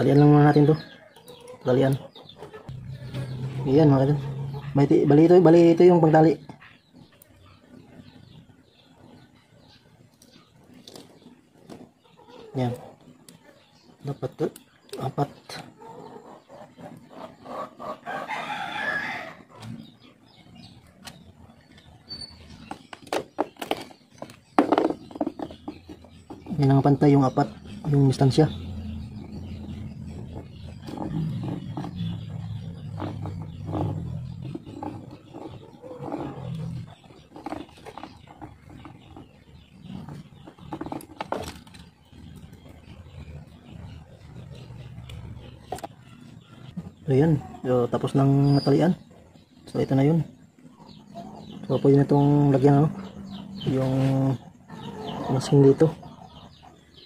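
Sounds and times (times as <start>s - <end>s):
rooster crowing: 18.0s - 19.5s.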